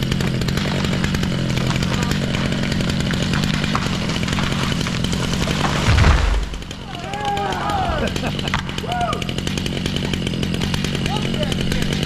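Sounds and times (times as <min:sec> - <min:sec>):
chainsaw running: 0:00.0 - 0:12.0.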